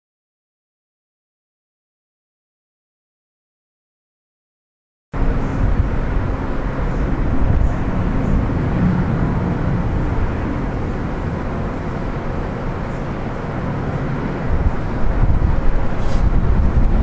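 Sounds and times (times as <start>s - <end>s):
deep outdoor ambient rumble: 5.2s - 17.0s.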